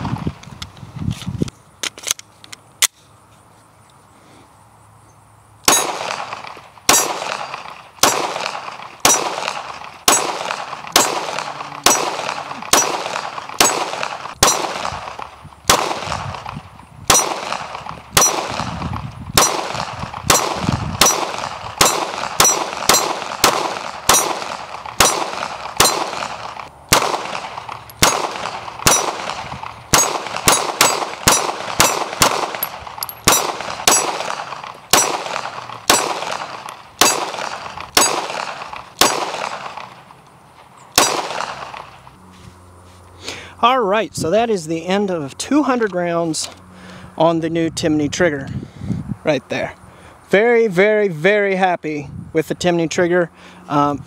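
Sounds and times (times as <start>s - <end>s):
pistol shots: 5.7s - 40.1s, 40.9s - 42.0s.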